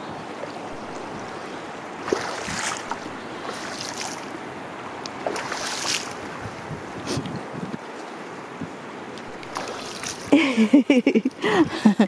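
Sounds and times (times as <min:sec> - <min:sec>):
shallow surf: 0:00.0 - 0:12.0
wind: 0:00.0 - 0:12.0
splashing in shallow water: 0:00.2 - 0:07.2, 0:09.1 - 0:11.6.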